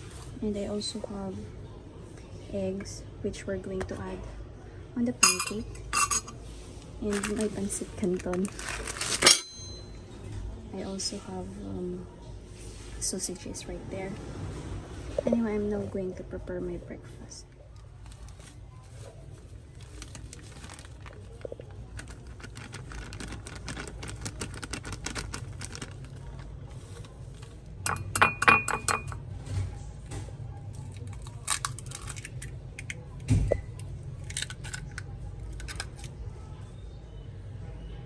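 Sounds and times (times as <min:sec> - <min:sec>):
clinks on glass bowl: 0:05.2 - 0:06.3, 0:27.9 - 0:29.2
plastic bag crinkling: 0:07.0 - 0:09.6, 0:17.8 - 0:27.6.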